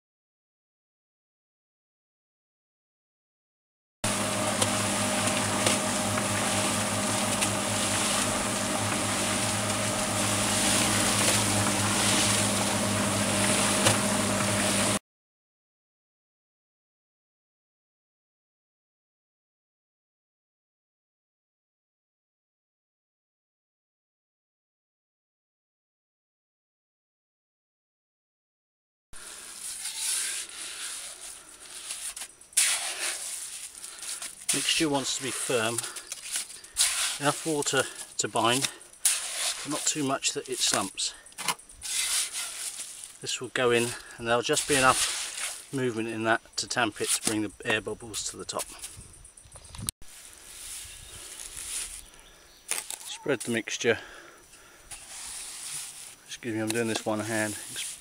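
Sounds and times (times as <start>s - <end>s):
concrete mixer running: 4.0s - 15.0s, 29.2s - 46.2s
trowel scraping mortar: 4.1s - 15.0s, 29.2s - 47.7s, 54.9s - 58.0s.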